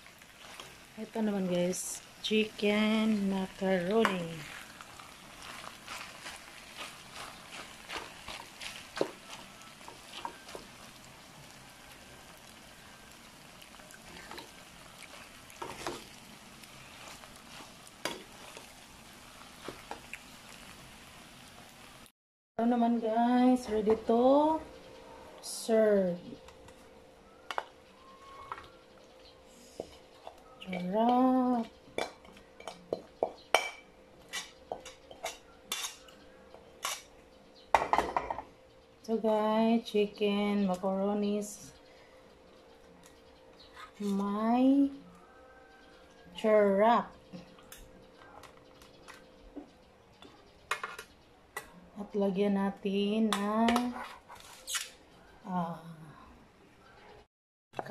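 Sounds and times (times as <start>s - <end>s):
metal spoon stirring in a metal pan: 3.4s - 10.9s, 13.6s - 16.2s, 33.5s - 36.1s
metal spoon scraping a pan: 34.3s - 36.2s.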